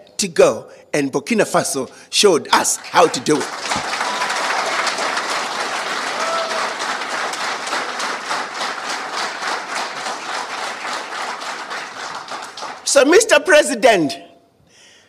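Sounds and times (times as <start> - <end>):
audience applauding: 2.6 - 13.1
short cheers: 3.7 - 5.0, 6.0 - 6.9.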